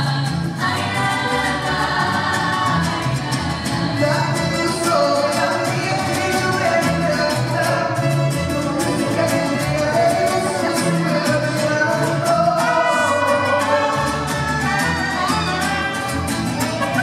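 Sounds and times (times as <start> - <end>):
woman singing: 0.0 - 5.2, 12.5 - 17.0
bass guitar line: 0.0 - 17.0
strummed guitars: 0.0 - 17.0
trumpet: 12.3 - 16.9.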